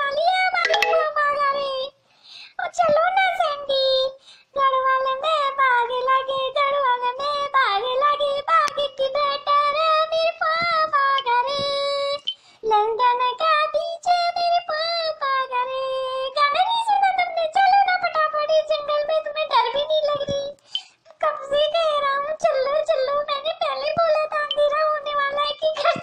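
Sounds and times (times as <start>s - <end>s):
high child-like voice singing: 0.0s - 2.0s, 2.6s - 20.6s, 21.2s - 26.0s.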